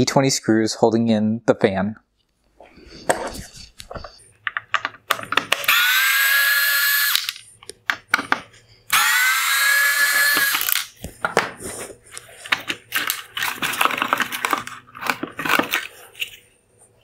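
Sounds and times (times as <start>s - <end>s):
plastic parts clicking and rattling: 3.1s - 5.9s, 7.0s - 8.5s, 10.0s - 11.5s, 12.1s - 16.4s
electric screwdriver whirring: 5.6s - 7.4s, 8.9s - 10.9s.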